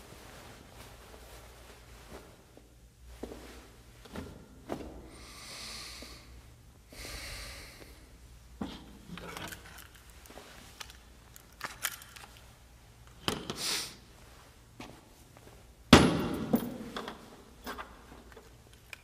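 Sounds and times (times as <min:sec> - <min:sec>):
soft breaths: 0:04.7 - 0:09.4.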